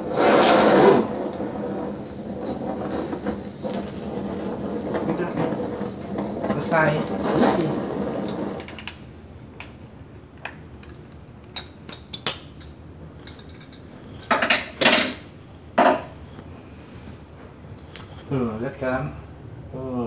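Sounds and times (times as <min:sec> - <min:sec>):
blow torch hissing: 0:00.0 - 0:08.6.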